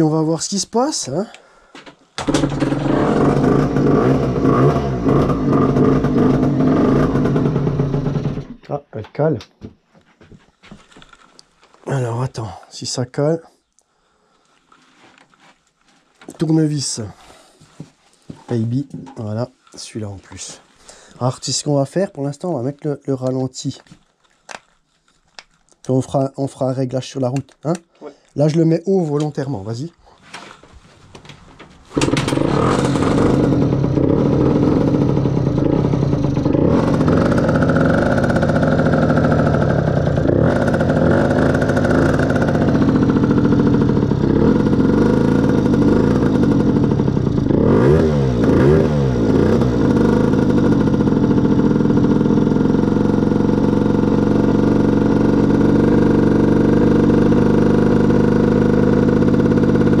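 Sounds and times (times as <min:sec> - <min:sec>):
two-stroke motorcycle engine idling: 0:02.2 - 0:08.6, 0:32.0 - 1:00.0.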